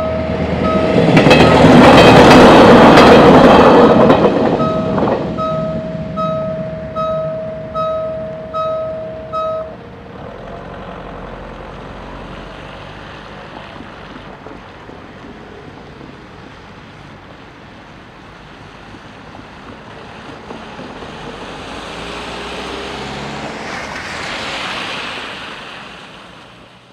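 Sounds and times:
level crossing bell dinging: 0.0s - 2.4s, 3.8s - 9.8s
car tyres hissing on wet road: 10.3s - 26.9s.

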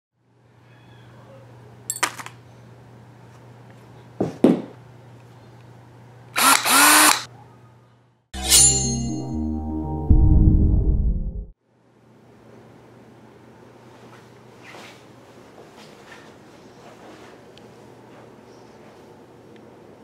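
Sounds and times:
power drill motor whine: 6.4s - 7.3s.

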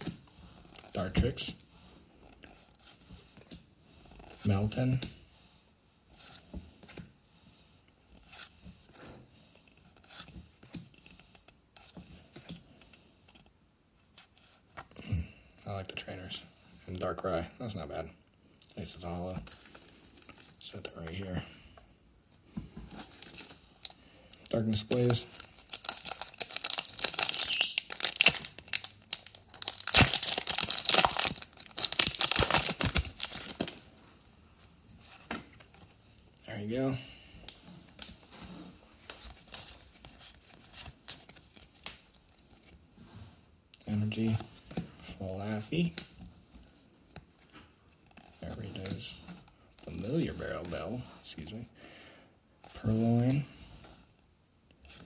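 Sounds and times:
foil wrapper tearing and crinkling: 25.0s - 33.8s.

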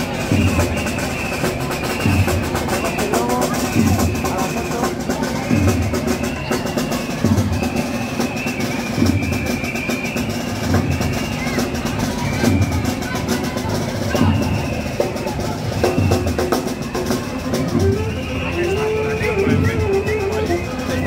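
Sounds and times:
quick percussion strokes: 0.0s - 21.0s
high melody: 17.0s - 21.0s.

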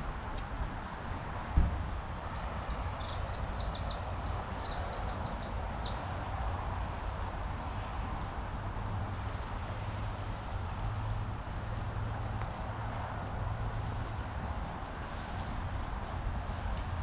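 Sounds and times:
songbird singing: 2.2s - 7.0s.

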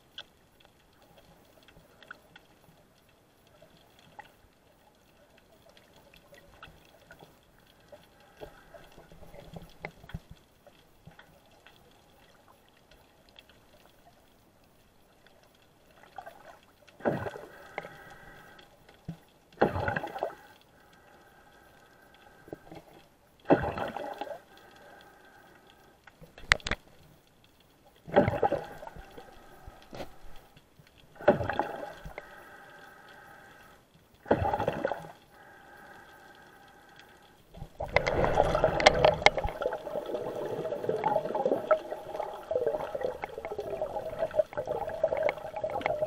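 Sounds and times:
faint underwater hiss: 0.0s - 46.0s
whooshing water surges: 37.6s - 46.0s.

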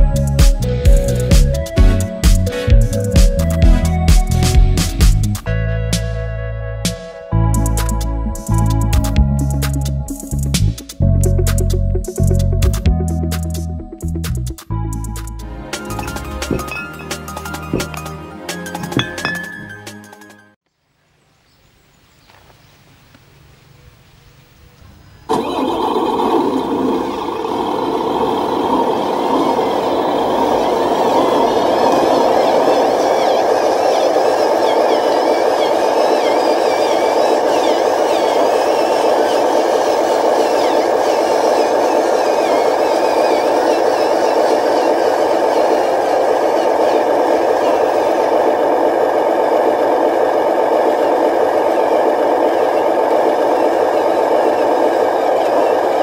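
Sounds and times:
toy truck motor drone: 25.3s - 56.0s
wavering motor whine: 25.3s - 56.0s.

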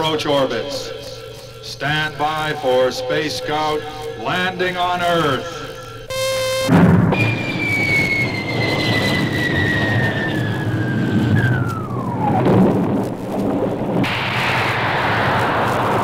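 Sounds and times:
descending whistling tone: 6.1s - 12.5s
rocket rushing roar: 6.7s - 16.0s.

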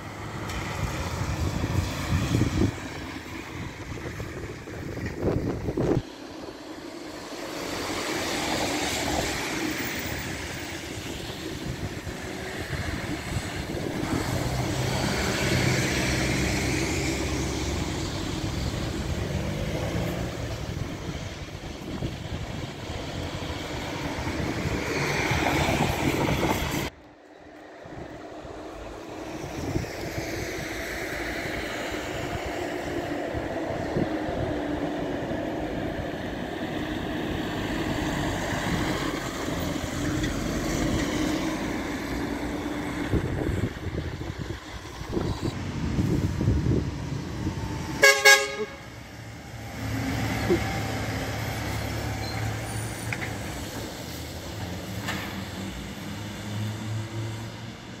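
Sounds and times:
vehicles driving on wet road: 0.0s - 58.0s
air horn blast: 48.0s - 48.9s.

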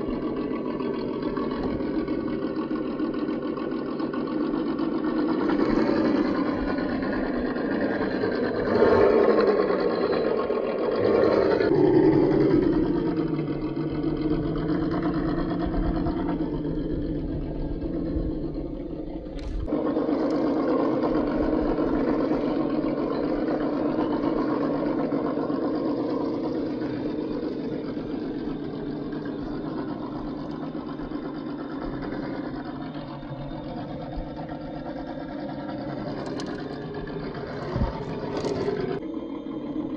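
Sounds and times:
toy car motor whirring: 36.0s - 39.0s.

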